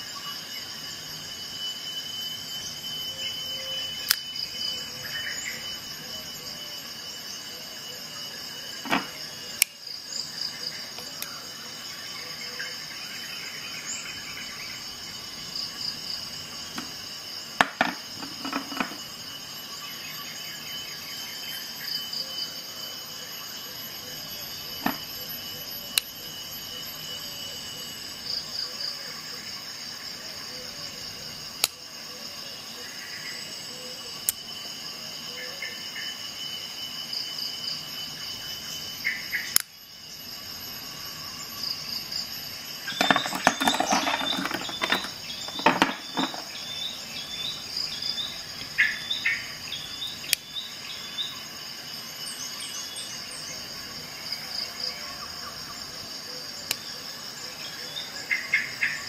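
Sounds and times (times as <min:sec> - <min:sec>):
insects chirring: 0:00.0 - 0:59.0
clattering and rustling: 0:17.6 - 0:19.0, 0:42.9 - 0:46.6.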